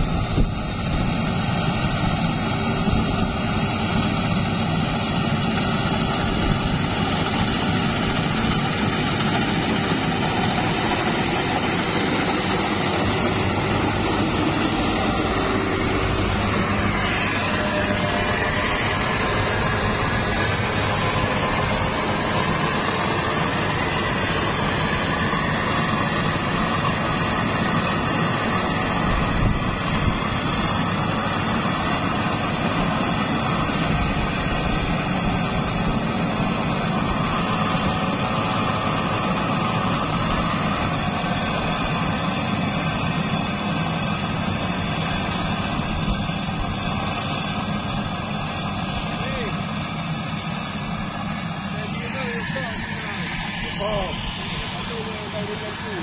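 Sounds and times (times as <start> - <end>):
combine harvester running: 0.0 - 56.0.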